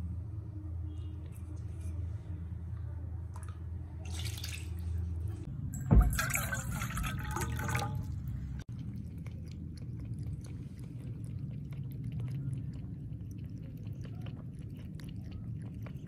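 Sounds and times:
low steady hum: 0:00.0 - 0:16.0
water pouring into metal bowl: 0:03.4 - 0:05.0, 0:05.7 - 0:08.7
cat lapping water: 0:06.1 - 0:16.0.

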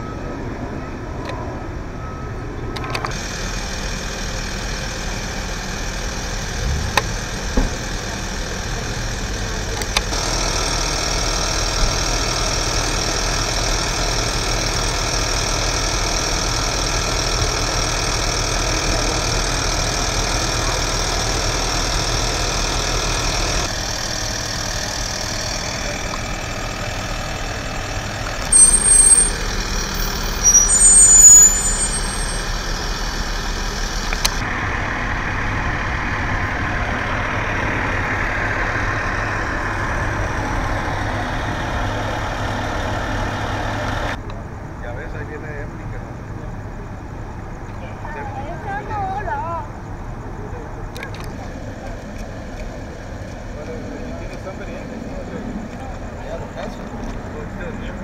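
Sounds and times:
trucks idling: 0:00.0 - 0:58.0
bursts with short high tones: 0:28.5 - 0:32.7.

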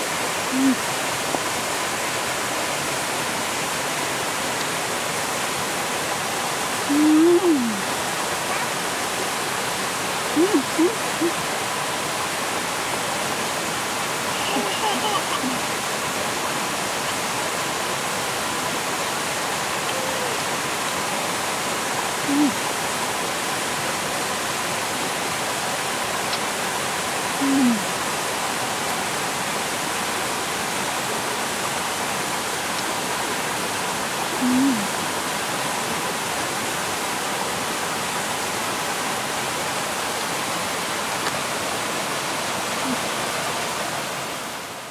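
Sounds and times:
river water running over rocks: 0:00.0 - 0:44.9
hummed voice sounds: 0:00.5 - 0:00.9, 0:06.9 - 0:07.9, 0:10.4 - 0:11.4, 0:19.8 - 0:20.5, 0:22.3 - 0:22.6, 0:27.4 - 0:28.0, 0:34.4 - 0:35.0, 0:42.8 - 0:43.1.

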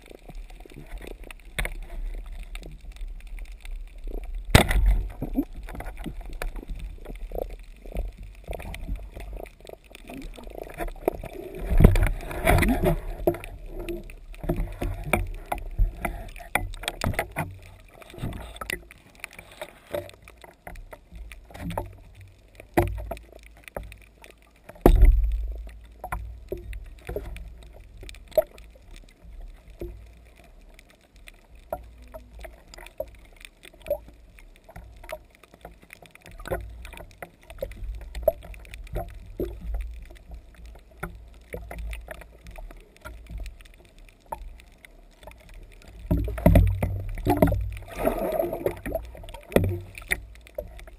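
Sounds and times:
water sloshing and splashing: 0:00.0 - 0:50.9.

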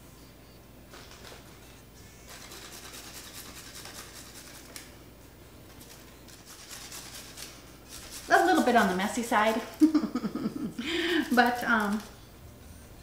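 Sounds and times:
carrot rasping on metal grater: 0:06.4 - 0:09.8.

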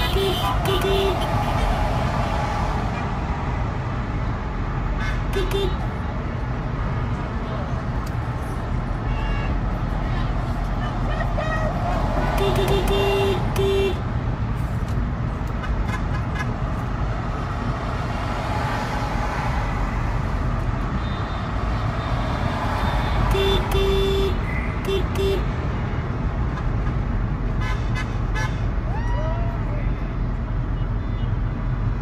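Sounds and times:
car horn honking: 0:00.0 - 0:01.7, 0:05.0 - 0:05.9, 0:12.4 - 0:14.1, 0:20.9 - 0:22.1, 0:22.8 - 0:25.6
road noise inside car: 0:00.0 - 0:32.0.

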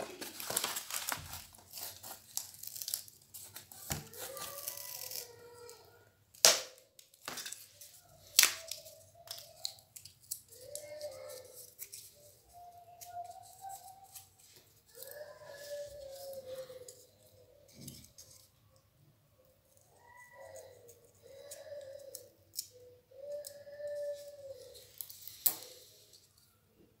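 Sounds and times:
card clicking and rustling: 0:00.0 - 0:05.2.

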